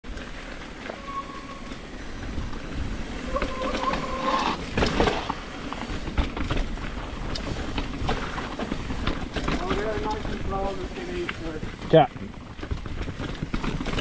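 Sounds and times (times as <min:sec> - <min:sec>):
bike tyres crunching over dirt: 0:00.1 - 0:14.0
short steady tone: 0:00.9 - 0:01.9
bike knocks and rattles: 0:03.3 - 0:14.0.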